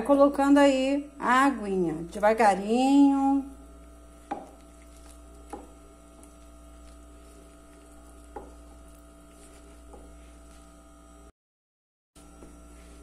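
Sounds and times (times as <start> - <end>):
wooden spoon stirring dough: 3.6 - 10.8.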